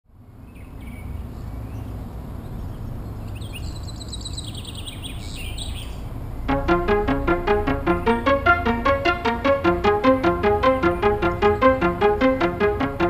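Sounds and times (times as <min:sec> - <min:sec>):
music with plucked notes: 0:06.5 - 0:13.0.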